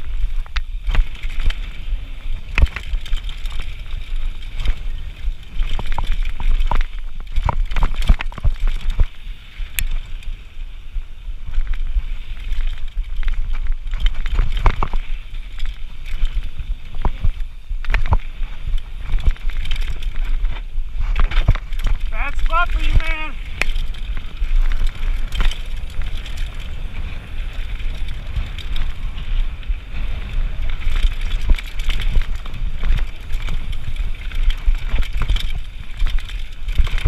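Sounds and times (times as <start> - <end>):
bike clicks knocks and rattles: 0.0 - 10.5, 11.4 - 22.1, 23.4 - 37.0
wind buffeting and tyre noise: 0.0 - 37.0.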